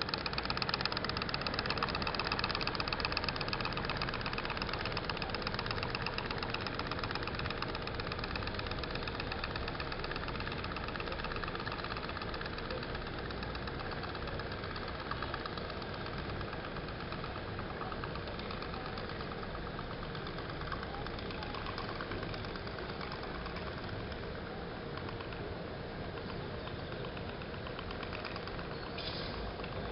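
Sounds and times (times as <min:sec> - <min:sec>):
toy steam boat engine popping: 0:00.0 - 0:29.9.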